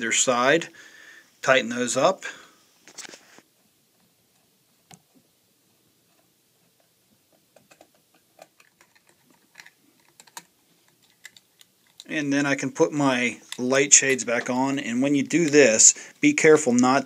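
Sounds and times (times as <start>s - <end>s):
small metal clicks and taps: 7.3s - 12.1s.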